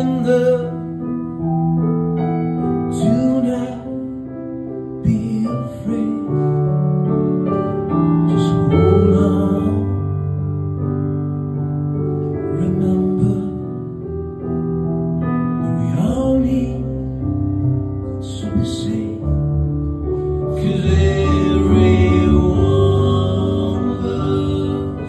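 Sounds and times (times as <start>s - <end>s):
man singing: 0.0s - 1.2s, 2.9s - 4.2s, 5.0s - 6.8s, 8.3s - 10.3s, 12.5s - 13.8s, 15.6s - 17.3s, 18.2s - 19.8s, 20.4s - 25.0s
keyboard chords: 0.0s - 25.0s.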